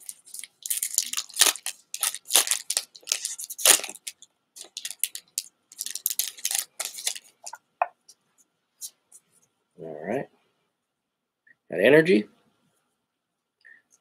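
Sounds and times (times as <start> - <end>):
foil wrapper tearing and crinkling: 0.0 - 7.6.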